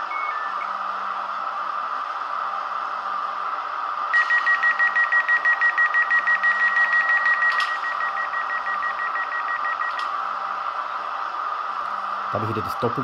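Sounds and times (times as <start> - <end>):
rapid high warning beeps: 0.0 - 0.8, 4.1 - 10.0
steady hum: 0.0 - 13.0.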